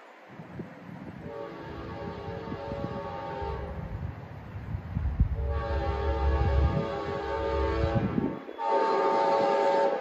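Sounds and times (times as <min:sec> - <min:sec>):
locomotive rumble: 0:00.4 - 0:10.0
train horn chord: 0:01.2 - 0:03.9, 0:05.4 - 0:10.0.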